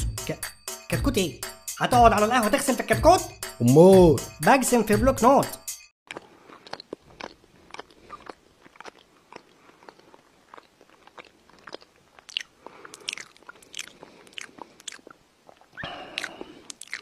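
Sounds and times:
person chewing crunchy food: 6.1 - 17.0.

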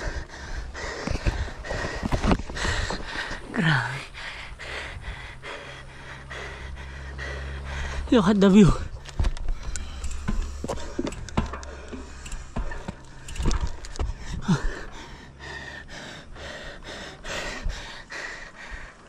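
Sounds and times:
heavy breathing with gasps: 0.0 - 8.2, 8.8 - 19.0
wind rumbling on microphone: 0.0 - 15.2
light clicks: 9.0 - 14.2.

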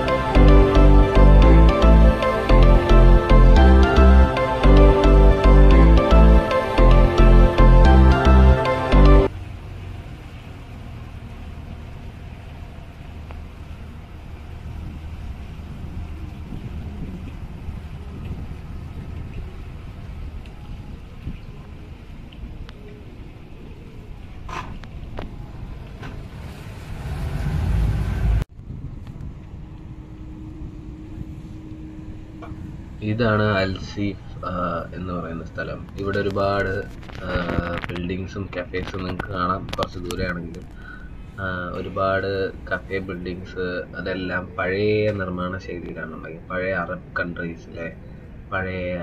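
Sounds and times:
boat engine humming: 0.0 - 49.0
wind buffeting microphone: 13.1 - 47.2.

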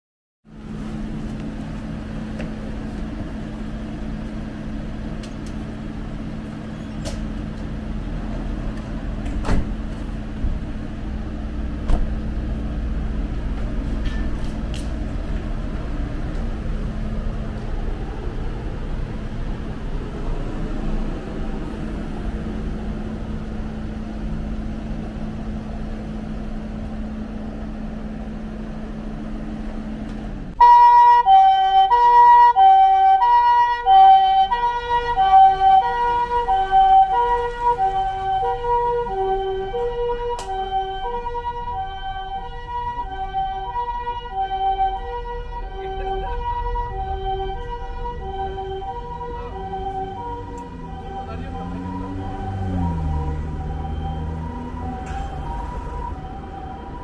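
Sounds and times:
ambulance engine idling: 0.5 - 52.5, 53.1 - 57.0
door thuds: 9.2 - 9.8.

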